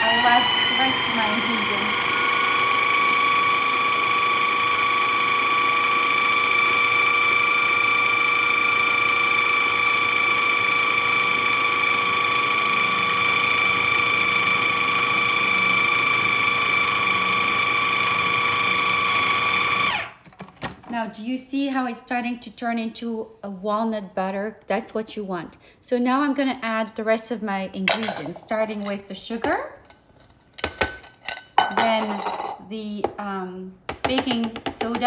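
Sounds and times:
food processor grinding nuts: 0:00.0 - 0:20.2.

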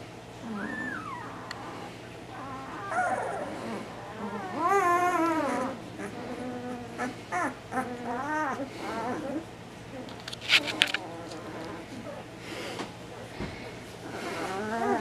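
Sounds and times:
puppies squeaking and whimpering: 0:00.4 - 0:12.3, 0:14.0 - 0:15.0.

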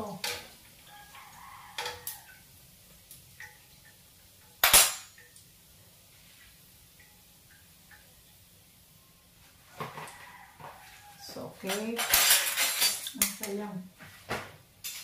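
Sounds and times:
metal utensils clinking on wok: 0:01.8 - 0:02.2, 0:11.6 - 0:13.7.

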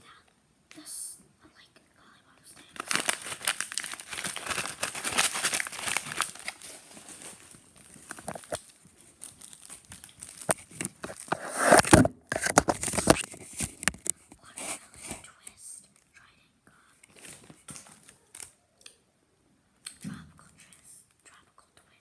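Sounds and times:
plastic pouch crinkling: 0:02.6 - 0:14.1
rustling bump: 0:02.8 - 0:08.6.

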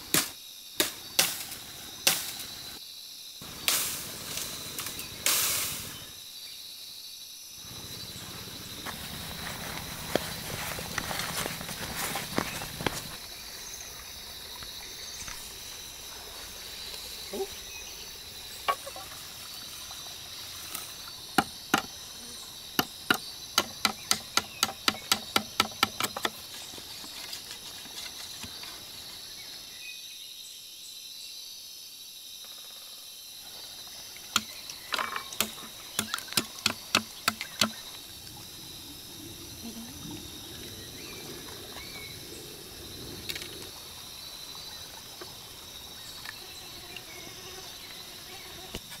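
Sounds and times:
insects chirring: 0:00.0 - 0:49.0
knife chopping bamboo: 0:21.4 - 0:21.9, 0:22.8 - 0:26.4, 0:35.4 - 0:37.8.

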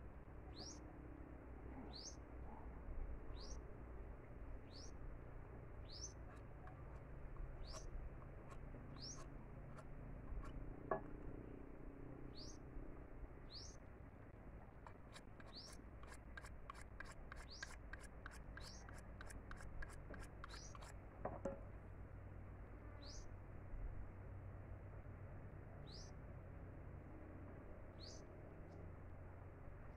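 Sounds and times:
bird chirping: 0:00.5 - 0:00.8, 0:01.8 - 0:02.2, 0:03.3 - 0:03.6, 0:04.6 - 0:05.0, 0:05.8 - 0:08.0, 0:08.9 - 0:10.6, 0:12.3 - 0:12.7, 0:13.5 - 0:13.8, 0:14.8 - 0:20.9, 0:23.0 - 0:23.3, 0:28.0 - 0:28.3
machete scraping a stick: 0:06.2 - 0:11.0, 0:14.8 - 0:21.0.

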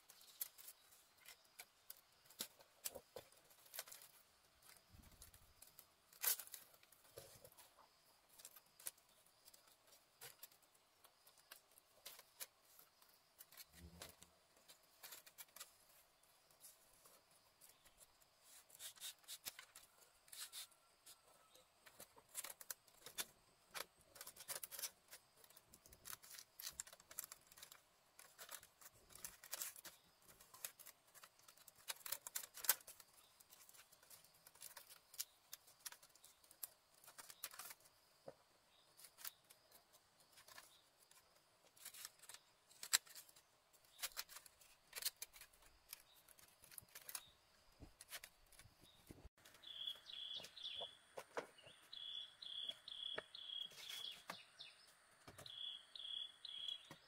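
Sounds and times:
sharp clicks and snips: 0:21.8 - 0:37.9.

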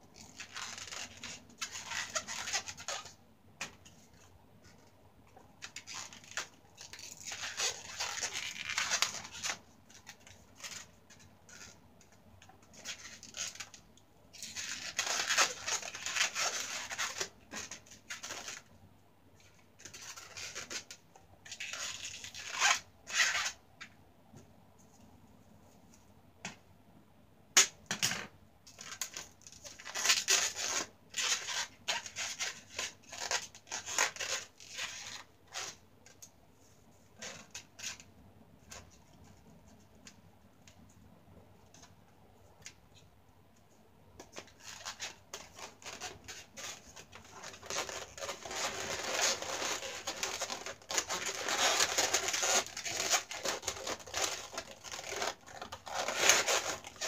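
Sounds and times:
balloons rubbing and squeaking: 0:00.2 - 0:03.2, 0:05.6 - 0:11.8, 0:12.6 - 0:18.7, 0:19.4 - 0:23.6, 0:28.8 - 0:35.8, 0:37.2 - 0:38.1, 0:44.2 - 0:57.0.

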